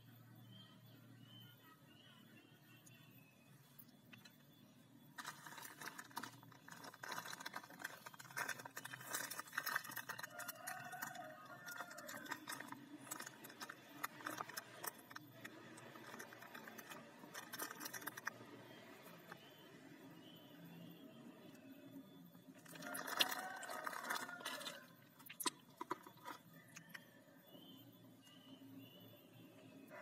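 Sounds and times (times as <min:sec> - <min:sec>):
plastic bag crinkling: 0:05.2 - 0:15.2, 0:22.6 - 0:26.4.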